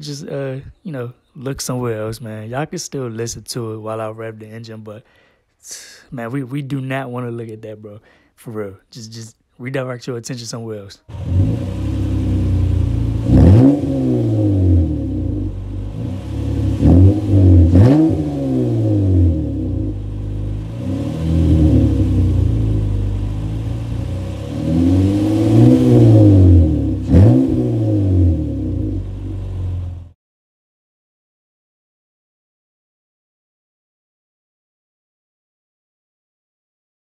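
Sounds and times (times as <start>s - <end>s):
car engine revving: 11.1s - 30.2s.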